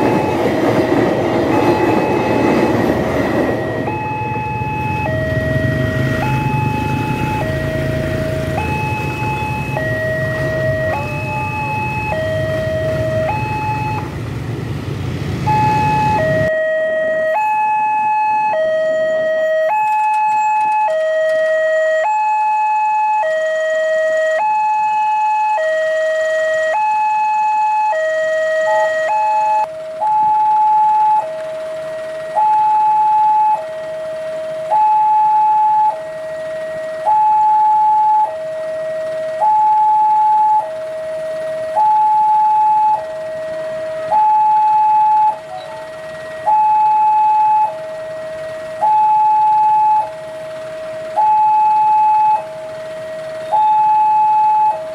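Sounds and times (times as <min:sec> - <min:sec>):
two-tone level crossing alarm: 0:00.0 - 0:14.2, 0:15.4 - 0:54.9.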